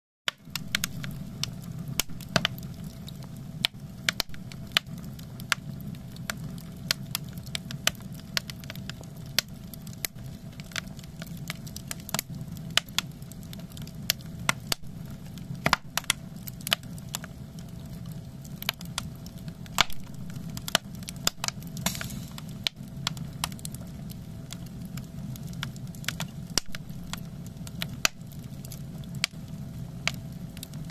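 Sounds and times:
logs crackling and popping: 0.3s - 30.9s
steady low rumble: 0.4s - 7.8s, 10.0s - 30.9s.

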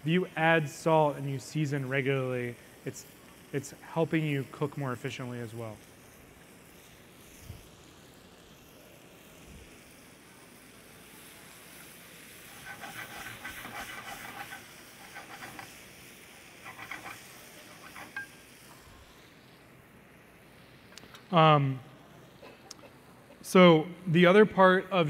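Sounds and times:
vegetables sizzling in a pan: 0.0s - 22.4s
wooden spoon scraping a pan: 12.5s - 15.8s, 16.6s - 18.4s.

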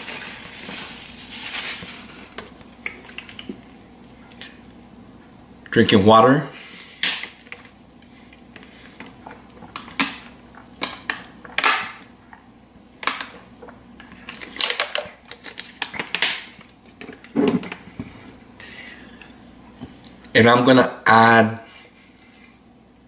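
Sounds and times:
plastic bottle crinkling: 0.0s - 3.6s, 13.0s - 17.8s.

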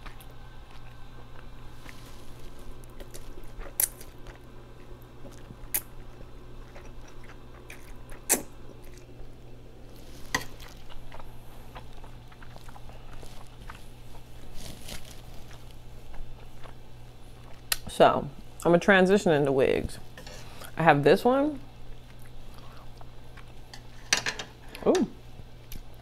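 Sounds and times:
slurping and chewing noodles: 9.9s - 17.7s.

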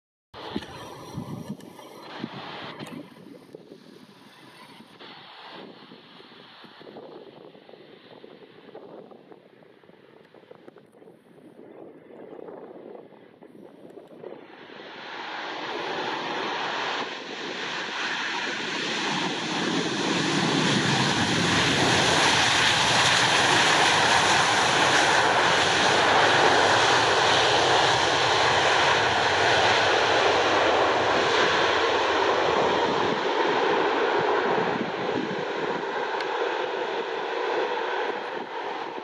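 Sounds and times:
jet engine noise: 0.4s - 39.0s.

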